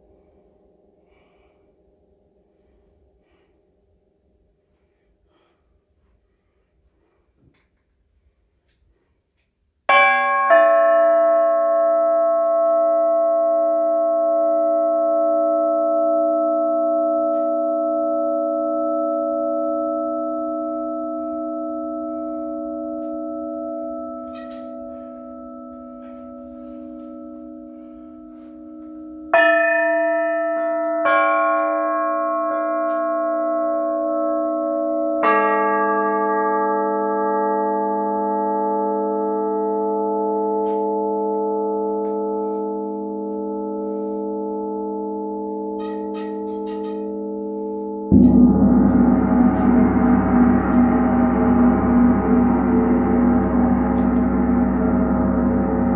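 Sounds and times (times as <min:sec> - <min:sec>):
metal plates struck with mallet: 0:45.4 - 0:55.9.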